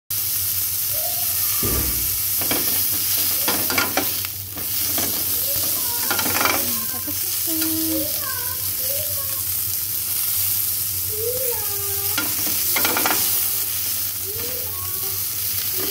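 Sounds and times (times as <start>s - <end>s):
sausages sizzling in a grill pan: 0.1s - 15.9s
spatula scraping a pan: 2.1s - 8.2s, 12.0s - 14.7s, 15.6s - 15.9s.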